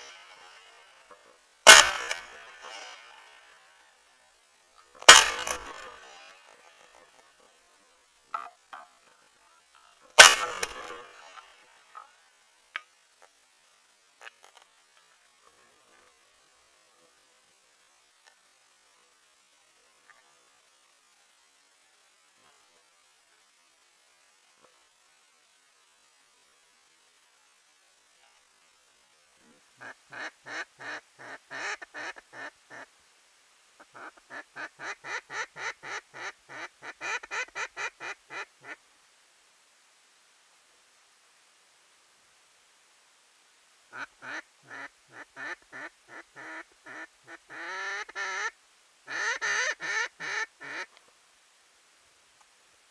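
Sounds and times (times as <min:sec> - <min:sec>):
faint steady hiss: 0:00.0 - 0:52.9
duck quacking: 0:01.7 - 0:03.1, 0:29.8 - 0:32.9, 0:33.8 - 0:38.8, 0:43.9 - 0:50.9.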